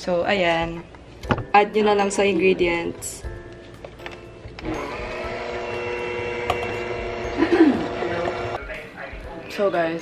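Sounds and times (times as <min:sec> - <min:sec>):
soft background music: 0:00.0 - 0:10.0
electric hand mixer whine: 0:04.6 - 0:08.6.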